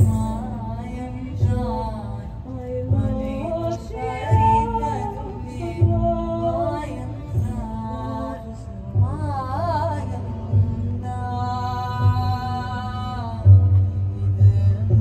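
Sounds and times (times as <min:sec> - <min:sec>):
deep low notes: 0:00.0 - 0:15.0
steady low drone: 0:00.0 - 0:15.0.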